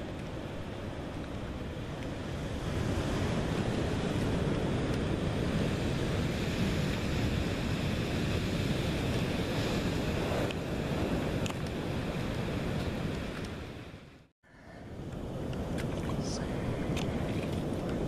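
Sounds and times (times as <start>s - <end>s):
ocean surf breaking: 0.0s - 18.0s
wind buffeting microphone: 14.9s - 18.0s.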